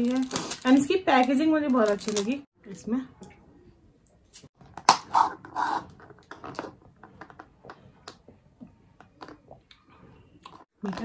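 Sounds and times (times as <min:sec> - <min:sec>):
plastic crackling rustles: 0:00.0 - 0:02.5.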